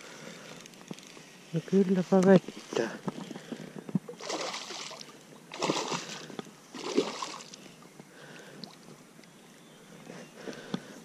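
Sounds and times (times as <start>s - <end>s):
fish splashing at water surface: 4.2s - 7.6s.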